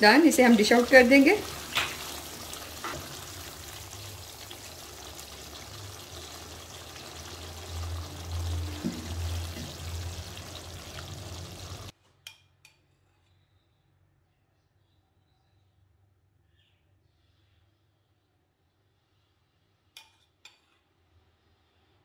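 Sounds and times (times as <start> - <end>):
gravy bubbling in a pot: 0.0 - 11.9
ladle stirring and scooping: 0.9 - 11.9.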